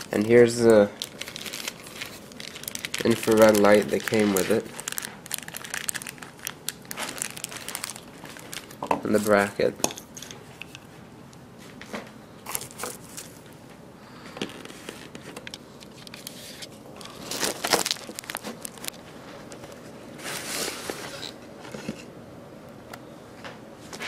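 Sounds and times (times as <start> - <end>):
bubble wrap crinkling: 0.0 - 9.7, 12.5 - 13.6, 14.5 - 21.4.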